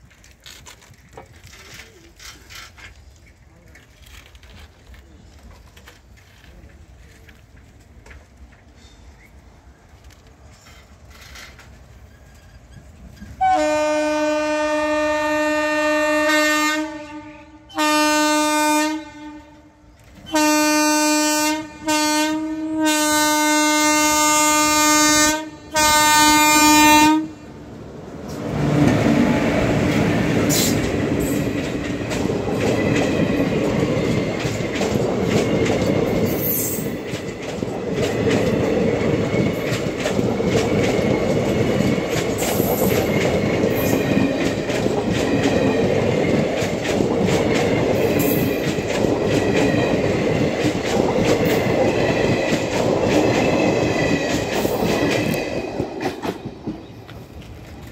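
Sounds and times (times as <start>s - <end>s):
wheels clattering over rail joints: 0.0s - 13.4s, 28.1s - 57.9s
train passing at speed: 3.0s - 57.9s
locomotive horn: 13.4s - 27.4s.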